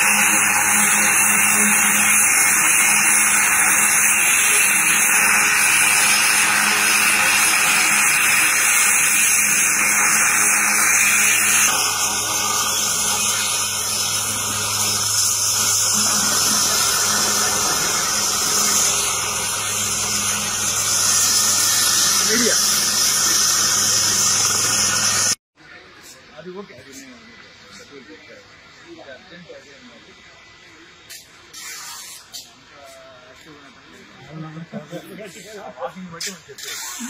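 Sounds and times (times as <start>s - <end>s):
helicopter turbine hiss: 0.0s - 25.4s.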